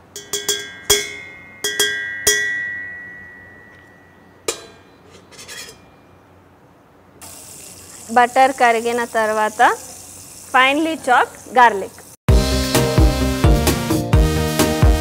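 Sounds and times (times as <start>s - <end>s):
metal spoon tapping a saucepan: 0.1s - 5.8s.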